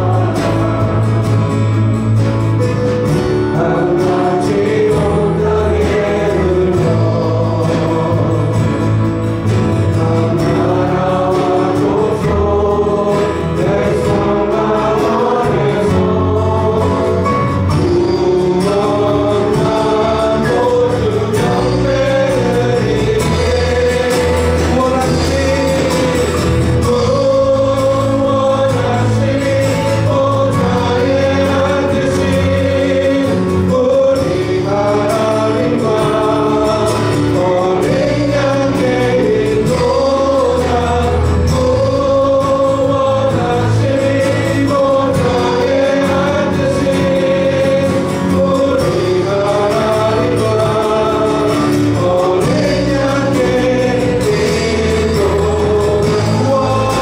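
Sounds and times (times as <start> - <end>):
acoustic guitar and band: 0.0 - 57.0
group singing a hymn: 0.0 - 57.0.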